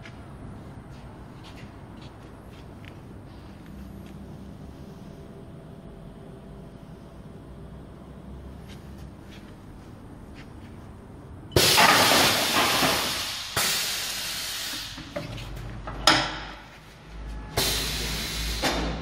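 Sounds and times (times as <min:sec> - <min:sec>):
compressed air hissing: 0:11.6 - 0:15.4, 0:17.6 - 0:19.0.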